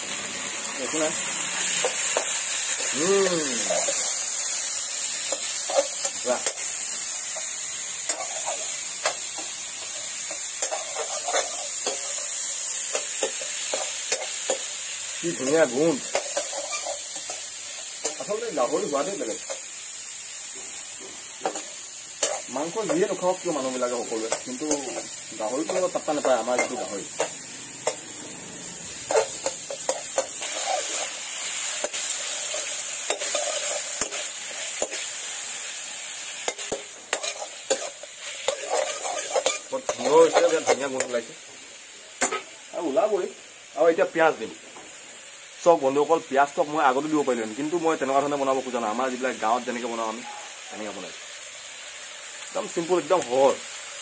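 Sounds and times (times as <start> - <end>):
pork sizzling in a wok: 0.0 - 54.0
metal spatula scraping a pan: 8.1 - 14.7, 16.0 - 18.3, 29.0 - 35.1, 36.4 - 41.1
metal spoon scraping pan: 16.0 - 17.4, 31.8 - 35.0, 36.5 - 41.1.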